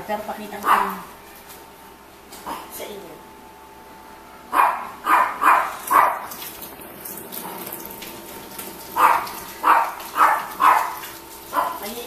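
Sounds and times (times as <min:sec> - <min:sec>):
dog barking: 0:00.6 - 0:01.1, 0:04.5 - 0:06.3, 0:09.0 - 0:11.9.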